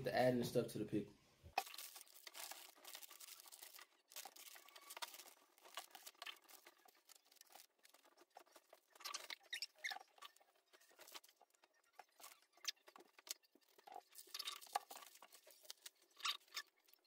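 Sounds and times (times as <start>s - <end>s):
plastic wrappers crinkling and tearing: 1.5s - 17.0s.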